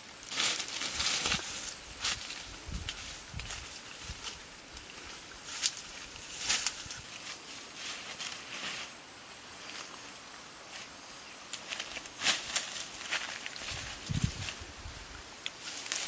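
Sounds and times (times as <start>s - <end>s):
faint high whine: 0.0s - 16.0s
footsteps through tall grass: 0.3s - 9.0s, 11.6s - 14.8s, 15.6s - 16.0s.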